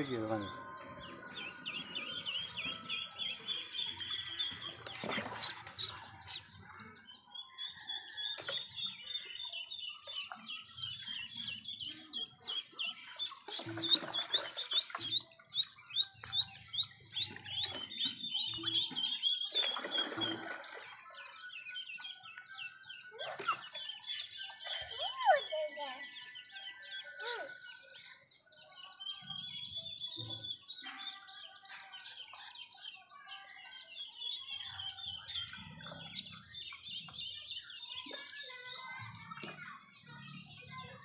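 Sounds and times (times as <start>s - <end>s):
ducklings peeping: 0.6s - 20.5s
water splashing in plastic tub: 4.1s - 6.5s, 13.4s - 15.7s, 16.3s - 21.4s.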